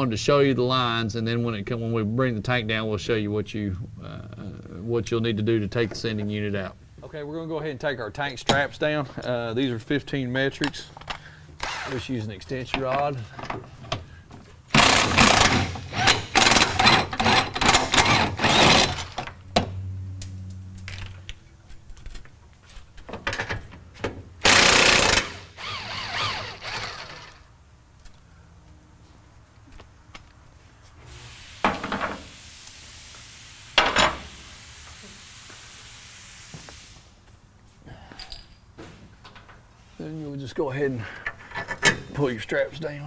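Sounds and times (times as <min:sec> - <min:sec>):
power wrench rattling: 0:14.7 - 0:19.3, 0:24.4 - 0:27.4.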